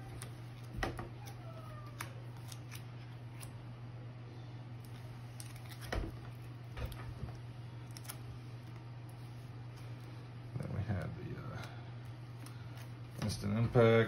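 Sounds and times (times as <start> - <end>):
steady low hum: 0.0 - 14.0.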